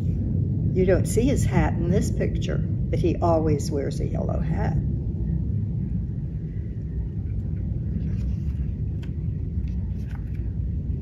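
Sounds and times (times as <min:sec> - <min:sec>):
low background rumble: 0:00.0 - 0:11.0
paper page turning: 0:08.0 - 0:10.5.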